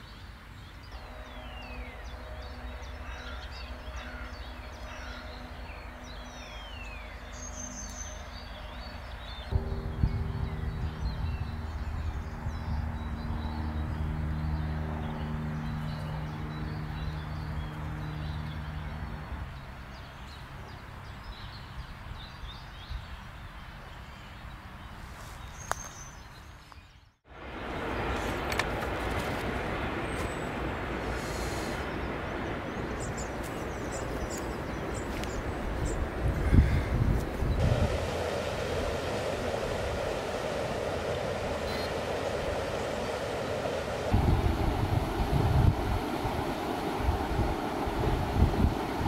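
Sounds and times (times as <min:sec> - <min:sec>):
small birds chirping: 0:00.0 - 0:27.2, 0:29.5 - 0:49.0
low hum with steady tones: 0:00.8 - 0:19.4, 0:37.4 - 0:49.0
steady rushing noise: 0:00.9 - 0:18.0, 0:27.3 - 0:49.0.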